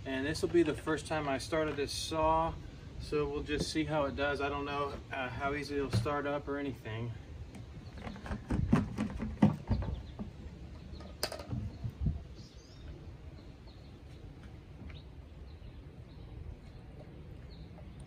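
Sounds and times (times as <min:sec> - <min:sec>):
faint birdsong chirping: 0:00.0 - 0:18.0
plastic gas can knocks and clicks: 0:07.6 - 0:10.3.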